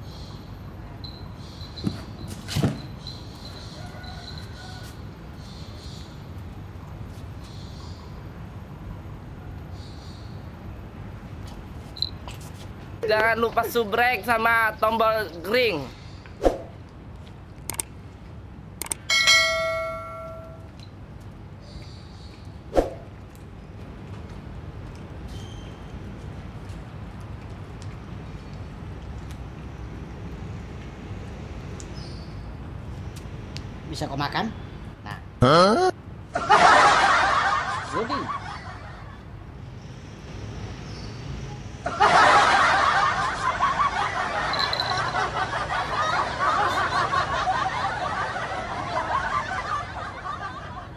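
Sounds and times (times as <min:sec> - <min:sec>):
notification bell ringing: 0:19.1 - 0:20.7, 0:44.5 - 0:45.2
man speaking: 0:35.4 - 0:36.0.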